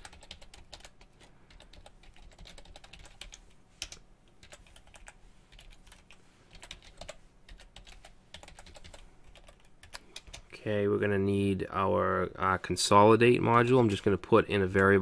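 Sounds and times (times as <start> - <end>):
keyboard typing: 0.0 - 10.5.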